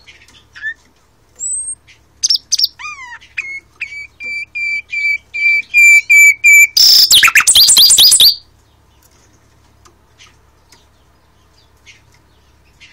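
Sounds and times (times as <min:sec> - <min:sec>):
nightingale singing: 0:01.4 - 0:09.0.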